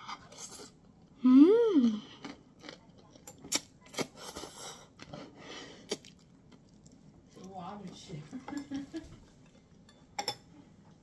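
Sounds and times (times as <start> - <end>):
person saying ooh: 1.2 - 2.0.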